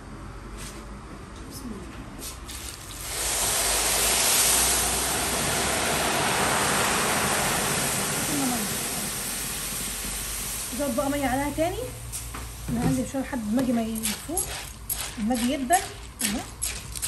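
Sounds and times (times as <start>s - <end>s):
water pouring into metal pot: 2.5s - 10.9s.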